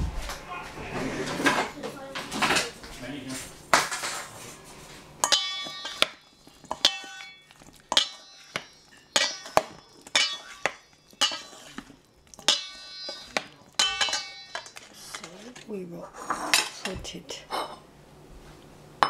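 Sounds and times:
salad servers clinking metal bowl: 5.2 - 17.8.

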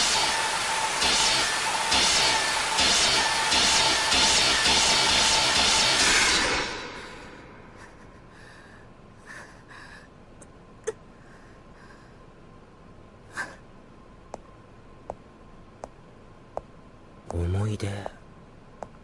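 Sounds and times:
faint steady hum: 0.0 - 19.0
woman breathing: 6.9 - 10.2, 11.1 - 12.4.

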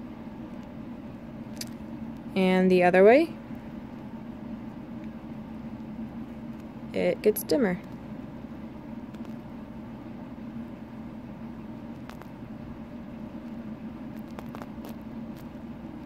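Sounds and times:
low background hum: 0.0 - 16.0.

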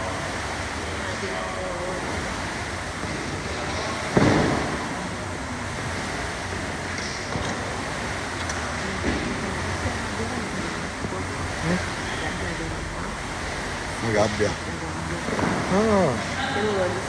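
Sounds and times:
gym hall hiss: 0.0 - 17.0
loud thud: 4.1 - 5.0.

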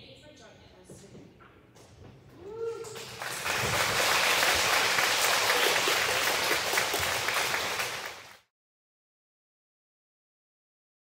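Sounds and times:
crowd applauding: 2.6 - 8.5.

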